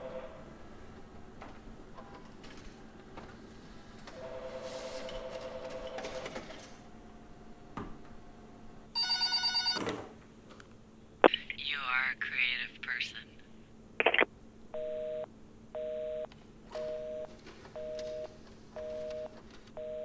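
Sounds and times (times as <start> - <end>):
telephone ringing: 4.2 - 6.4, 9.0 - 9.8
two-tone telephone signal: 9.0 - 9.8.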